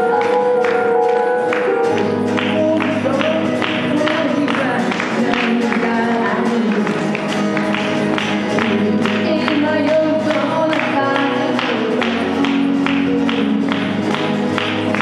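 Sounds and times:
electronic keyboard: 0.0s - 5.0s
guitar: 0.0s - 15.0s
live band music: 0.0s - 15.0s.

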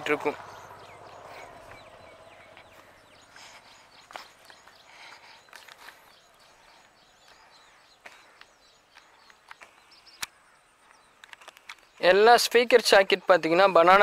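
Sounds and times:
small birds chirping: 0.0s - 14.0s
light clicks: 8.4s - 11.9s.

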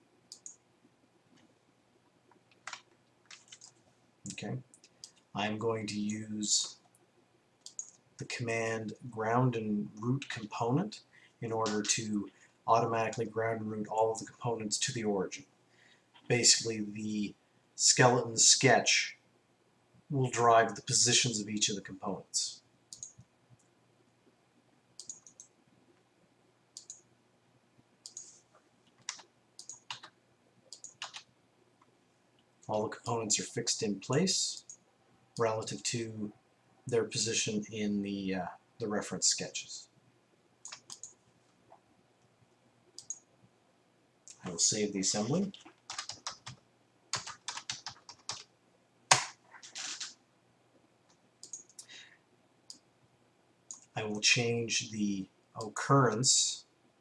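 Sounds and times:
computer mouse clicking: 0.3s - 0.6s, 7.6s - 8.0s, 22.9s - 23.7s, 25.0s - 25.5s, 26.8s - 27.0s, 28.0s - 31.3s, 40.6s - 41.2s, 43.0s - 43.3s, 51.1s - 51.9s
typing on a computer keyboard: 2.5s - 5.2s, 7.6s - 8.0s, 22.9s - 23.2s, 25.0s - 25.5s, 29.0s - 30.1s, 30.7s - 31.3s, 40.6s - 41.2s, 45.5s - 48.5s, 51.4s - 51.9s.

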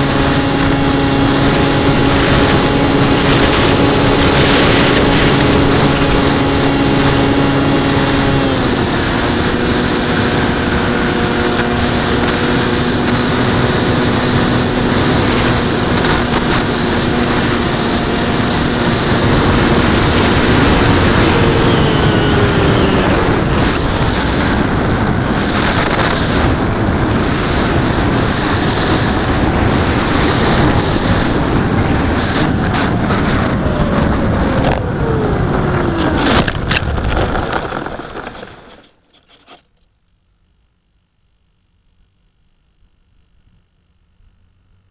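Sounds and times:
electric propeller motor hum: 0.0s - 39.6s.

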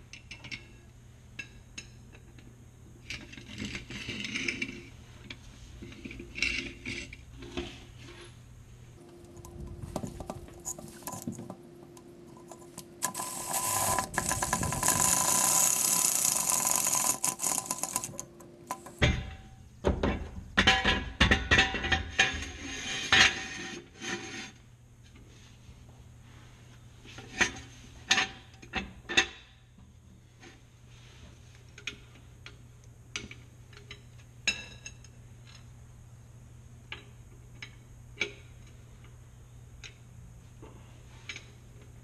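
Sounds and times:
cordless drill running: 13.0s - 18.2s.

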